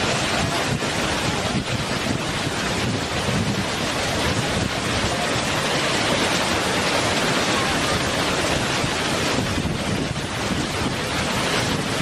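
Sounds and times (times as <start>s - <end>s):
waterfall rushing over rocks: 0.0s - 12.0s.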